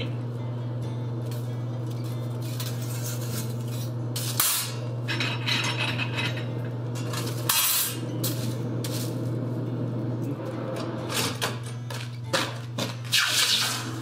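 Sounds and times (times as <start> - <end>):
steady low hum: 0.0 - 13.1
forge tools clinking and scraping: 2.0 - 9.1.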